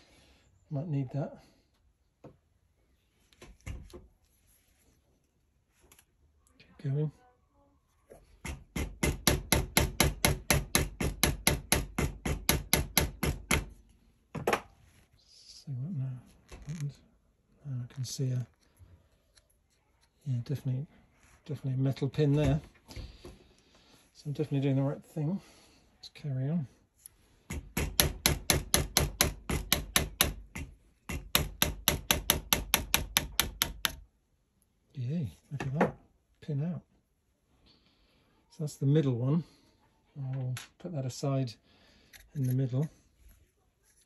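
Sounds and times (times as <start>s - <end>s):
rubber mallet tapping steel punch: 27.5s - 34.0s.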